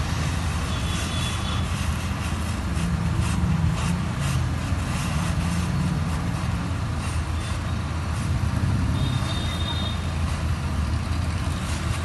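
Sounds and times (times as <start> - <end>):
welding torch flame rumbling: 0.0 - 12.0.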